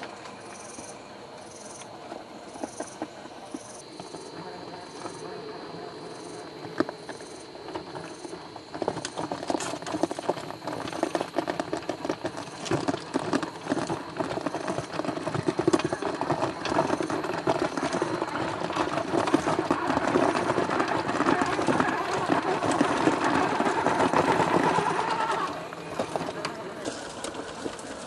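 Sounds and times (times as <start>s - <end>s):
tyres grinding over rock: 3.6s - 28.0s.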